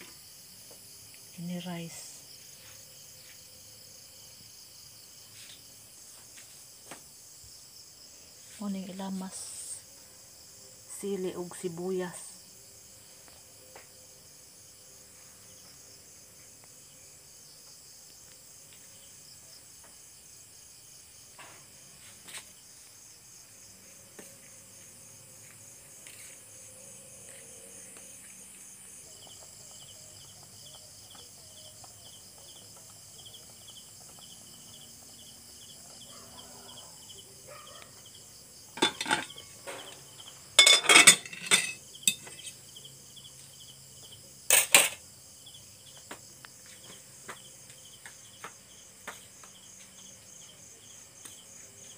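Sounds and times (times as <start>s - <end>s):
insects chirping: 0.0s - 51.9s
kitchenware clattering: 38.8s - 39.5s, 40.6s - 42.6s.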